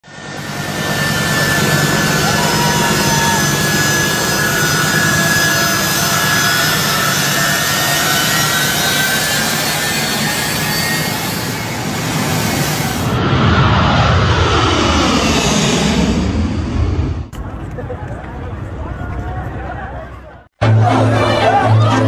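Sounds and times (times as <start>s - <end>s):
jet engines running: 0.0s - 20.0s
high whining tones: 0.1s - 17.3s.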